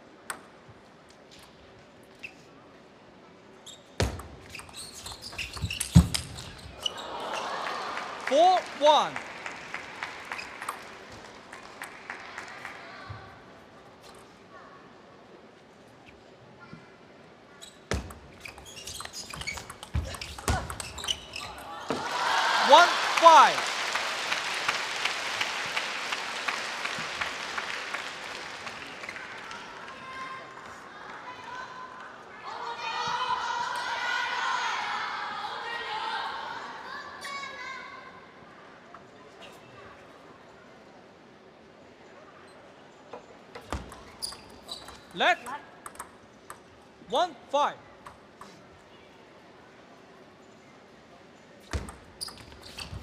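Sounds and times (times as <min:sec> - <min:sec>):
crowd applause: 0:07.0 - 0:13.0, 0:21.9 - 0:30.0
table tennis ball clicks: 0:43.6 - 0:46.7.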